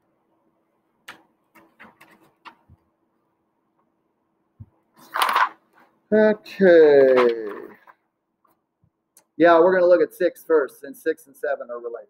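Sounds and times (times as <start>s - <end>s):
paper rustling: 5.0s - 5.9s, 7.0s - 8.0s.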